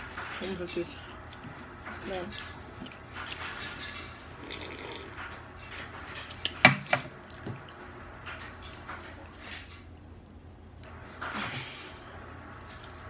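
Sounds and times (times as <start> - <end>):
sipping iced drink: 4.4 - 5.2.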